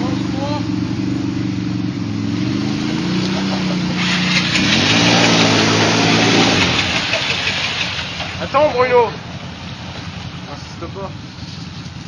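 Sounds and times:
quad bike engine revving: 0.0s - 9.3s
water splashing: 3.3s - 12.0s.

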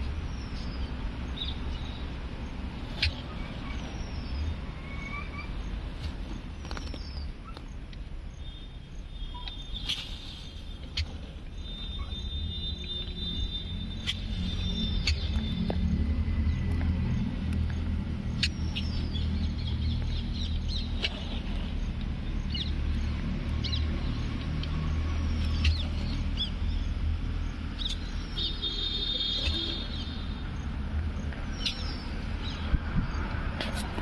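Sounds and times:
small birds chirping: 0.0s - 33.4s.

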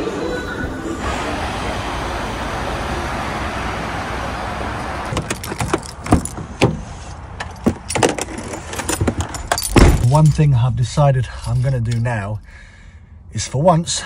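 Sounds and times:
keys jangling: 5.1s - 6.4s, 7.4s - 10.5s, 11.3s - 12.2s
van door handle clicking: 5.1s - 6.8s.

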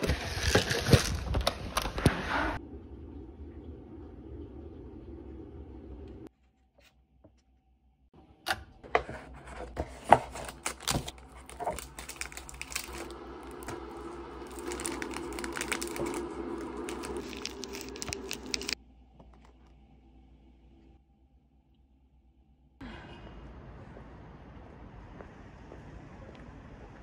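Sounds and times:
plastic packets ripping and crinkling: 0.0s - 2.1s, 10.4s - 18.8s
plastic rustling: 0.0s - 2.2s, 9.9s - 18.8s.

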